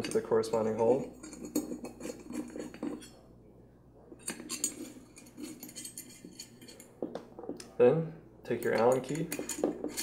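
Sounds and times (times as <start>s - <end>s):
small screws and parts clinking: 4.2s - 7.1s, 8.6s - 10.0s.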